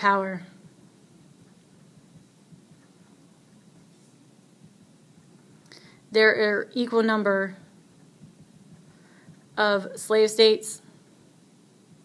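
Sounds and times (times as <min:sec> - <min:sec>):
marker pen writing on paper: 0:00.6 - 0:05.4.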